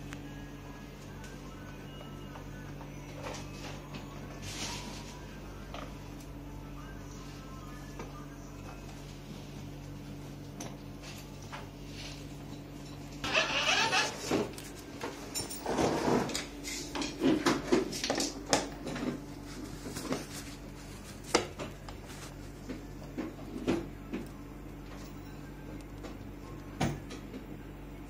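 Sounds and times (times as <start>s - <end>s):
plastic wrapping rustling: 19.1s - 22.6s.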